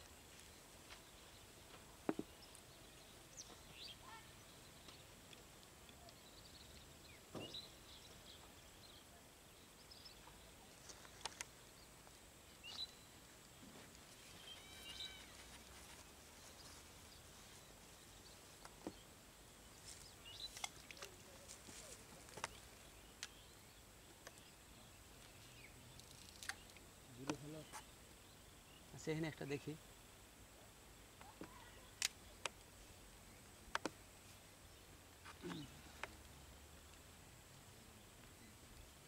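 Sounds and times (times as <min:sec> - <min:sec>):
faint bird chirps: 0:00.0 - 0:30.1, 0:34.2 - 0:39.0
sharp clicks: 0:32.0 - 0:32.6.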